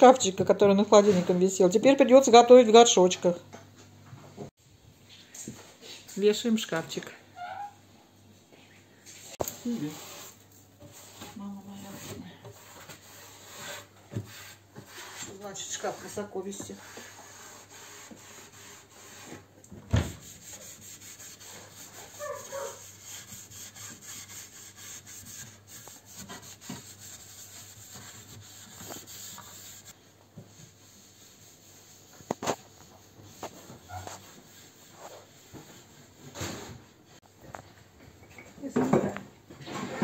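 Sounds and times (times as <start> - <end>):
cloth wiping cabinet: 9.5 - 36.8.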